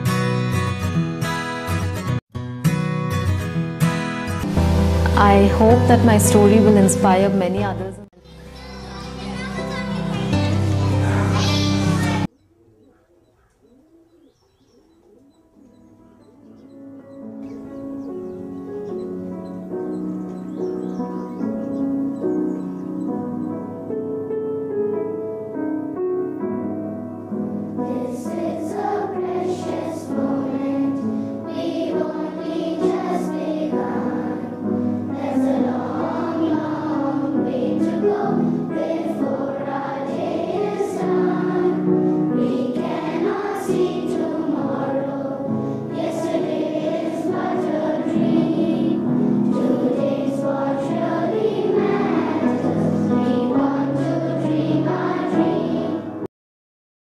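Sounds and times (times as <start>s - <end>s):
piano accompaniment: 0.0s - 12.3s, 15.2s - 56.3s
children's choir singing: 8.2s - 12.3s, 27.8s - 56.3s.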